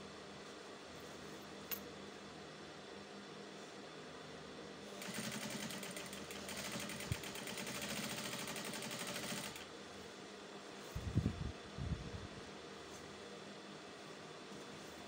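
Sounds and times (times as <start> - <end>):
sewing machine stitching: 5.0 - 9.6.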